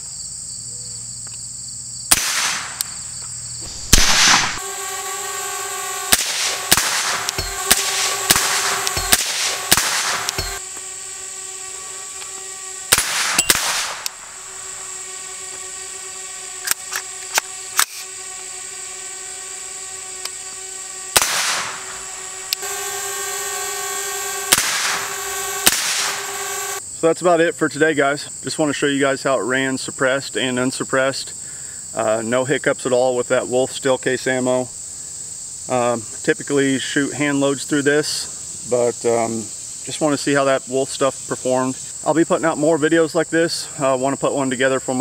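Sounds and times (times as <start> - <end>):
suppressed gunshots: 2.1 - 2.9, 3.6 - 4.7, 6.1 - 10.6, 12.9 - 14.3, 21.2 - 22.0, 24.5 - 26.3.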